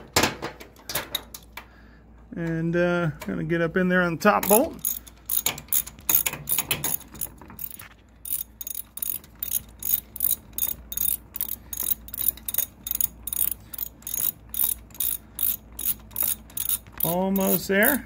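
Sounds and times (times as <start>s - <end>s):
ratchet wrench clicking: 4.4s - 18.0s.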